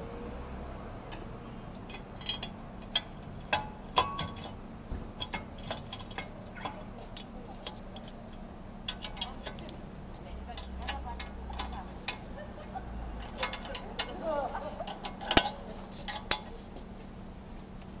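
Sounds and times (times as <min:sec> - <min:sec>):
faint steady hum: 0:00.0 - 0:18.0
light metallic clicks and taps: 0:01.0 - 0:04.6, 0:05.2 - 0:12.2, 0:13.2 - 0:14.2, 0:14.8 - 0:16.6.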